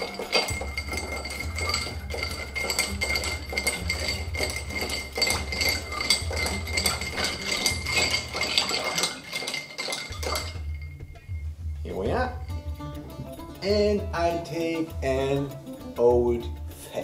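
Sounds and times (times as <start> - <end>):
spoon stirring ice in glass: 0.0 - 10.8.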